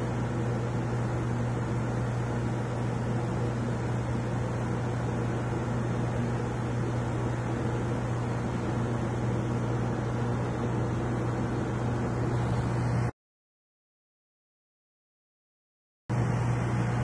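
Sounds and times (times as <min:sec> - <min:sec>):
air pump humming: 0:00.0 - 0:13.1.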